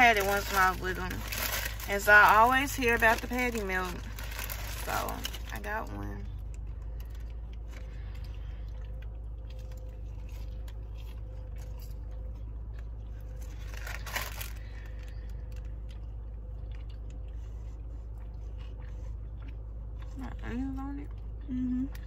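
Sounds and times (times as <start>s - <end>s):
low hum: 0.0s - 22.0s
person chewing food: 6.3s - 22.0s.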